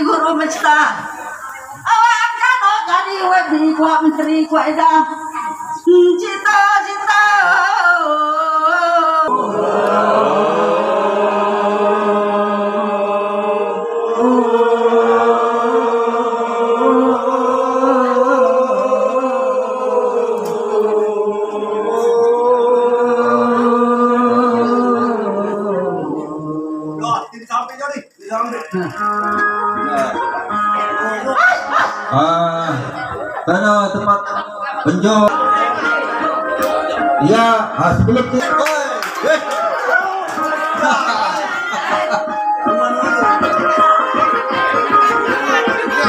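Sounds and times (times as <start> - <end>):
lead voice singing: 5.9 - 27.3
crowd chanting: 9.2 - 27.0.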